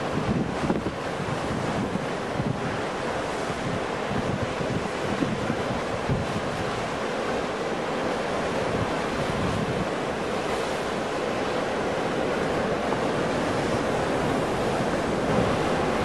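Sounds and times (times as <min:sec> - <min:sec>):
ocean waves breaking: 0:00.0 - 0:16.0.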